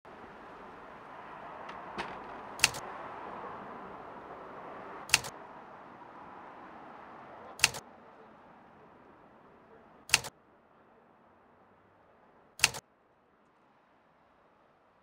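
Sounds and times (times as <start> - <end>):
camera shutter double clicks: 5.1 - 5.3, 7.6 - 7.8, 10.1 - 10.3, 12.6 - 12.8.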